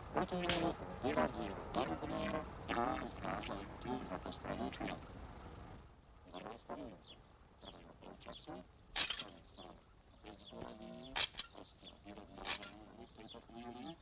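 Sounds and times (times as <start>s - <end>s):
sharp metallic clinks: 9.0s - 9.4s, 11.2s - 11.6s.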